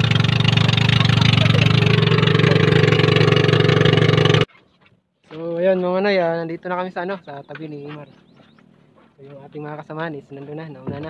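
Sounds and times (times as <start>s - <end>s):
boat engine running: 0.0s - 4.6s.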